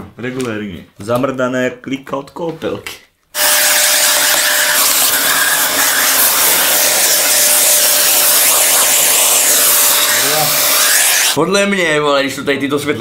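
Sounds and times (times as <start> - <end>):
vacuum cleaner running: 3.4 - 11.4.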